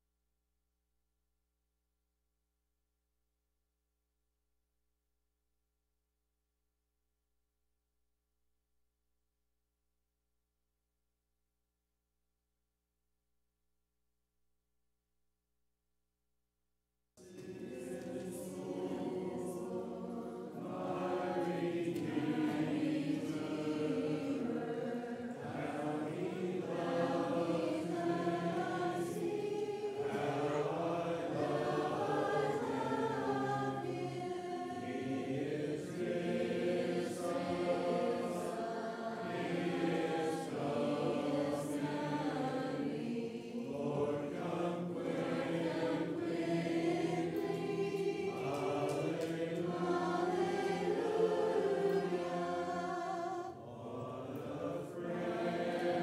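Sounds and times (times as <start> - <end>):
congregation singing a hymn: 17.2 - 56.0.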